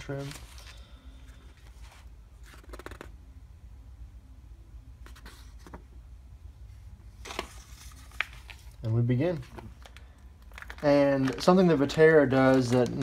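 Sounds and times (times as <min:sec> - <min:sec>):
paper pages rustling: 0:00.0 - 0:03.1, 0:07.2 - 0:13.0
low steady hum: 0:00.0 - 0:13.0.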